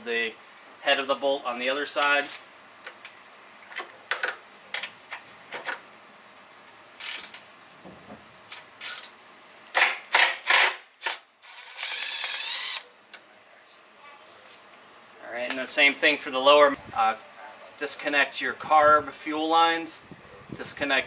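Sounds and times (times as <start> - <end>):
impact driver hammering: 9.8 - 10.8.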